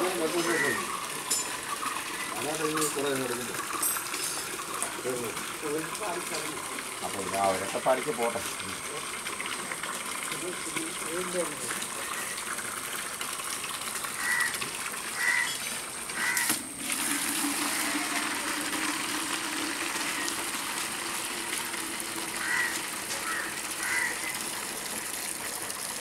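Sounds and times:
water pouring and splashing: 0.0 - 26.0
bird calling: 0.2 - 1.0, 1.8 - 2.8, 12.0 - 12.4, 14.2 - 14.6, 15.2 - 16.5, 22.4 - 24.4.

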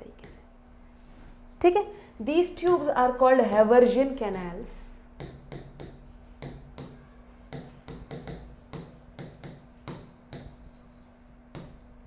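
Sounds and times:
marker ticking on writing board: 5.2 - 10.7, 11.5 - 11.8.

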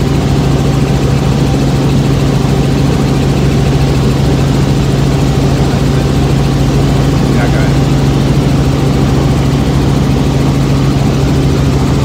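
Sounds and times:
helicopter engine and rotor drone: 0.0 - 12.0.

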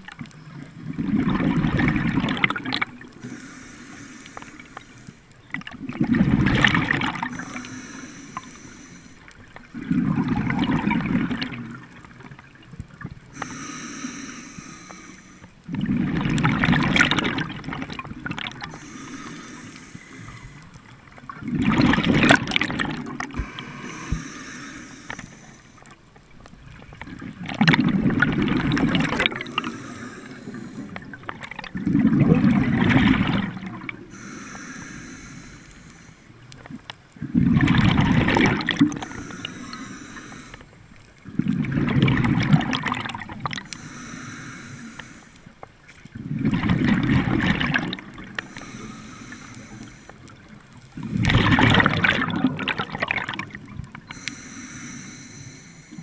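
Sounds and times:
exhaled bubbles rushing: 0.8 - 3.1, 5.5 - 7.7, 9.4 - 12.6, 15.7 - 18.8, 21.3 - 24.2, 26.7 - 29.8, 30.4 - 34.1, 37.2 - 39.2, 41.2 - 43.7, 46.1 - 48.4, 50.3 - 54.0
regulator inhaling hiss: 3.2 - 5.2, 7.2 - 9.3, 13.3 - 15.6, 18.7 - 20.9, 23.3 - 26.0, 29.3 - 31.2, 34.0 - 36.4, 38.9 - 40.9, 43.6 - 45.6, 48.4 - 51.2, 54.1 - 56.0.

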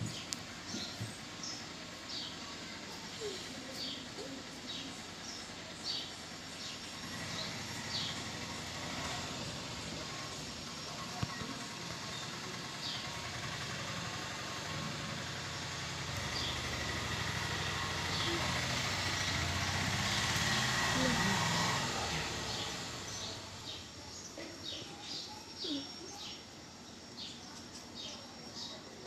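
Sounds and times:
motor vehicle engine: 0.0 - 29.0
outdoor background noise: 0.0 - 29.0
faint high chirps: 23.1 - 29.0.

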